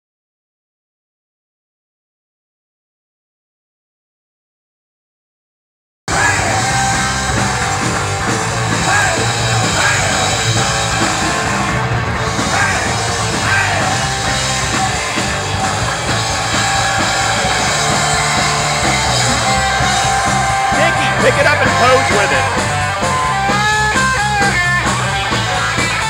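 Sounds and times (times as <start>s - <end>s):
punk rock music: 6.1s - 26.0s.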